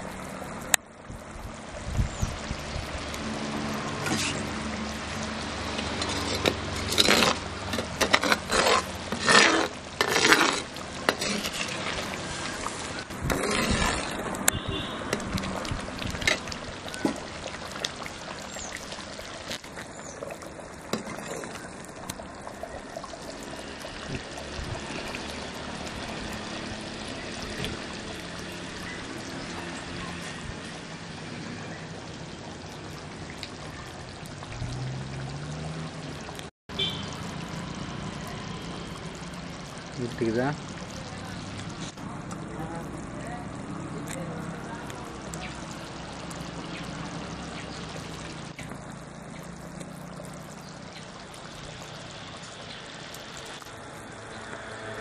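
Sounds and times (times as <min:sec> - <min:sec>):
curry bubbling in a pot: 0:00.0 - 0:55.0
splashing: 0:02.1 - 0:55.0
metal ladle stirring and scraping: 0:04.0 - 0:04.6, 0:05.4 - 0:22.2.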